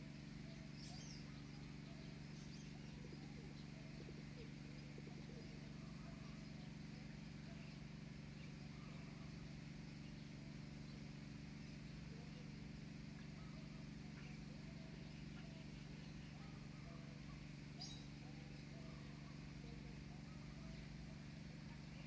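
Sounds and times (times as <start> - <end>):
faint distant voices: 0.0 - 22.0
faint low hum: 0.0 - 22.0.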